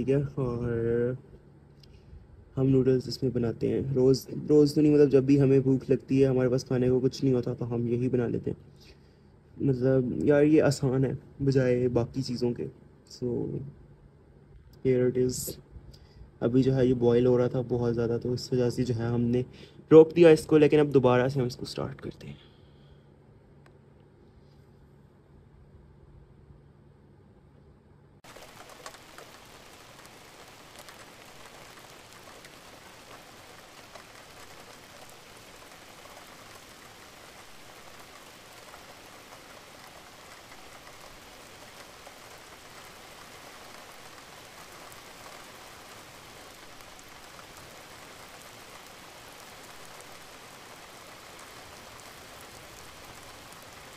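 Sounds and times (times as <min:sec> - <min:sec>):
rain falling: 0:00.0 - 0:00.6, 0:28.2 - 0:53.9
faint raindrop ticks: 0:01.3 - 0:02.1, 0:28.2 - 0:53.9.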